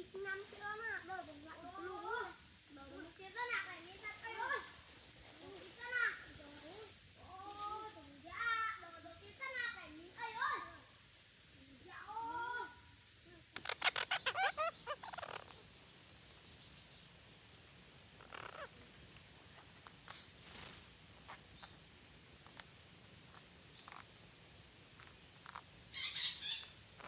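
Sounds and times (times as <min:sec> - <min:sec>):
parakeets calling harshly: 0:13.6 - 0:16.6, 0:18.1 - 0:18.9, 0:20.0 - 0:24.2, 0:24.9 - 0:27.0.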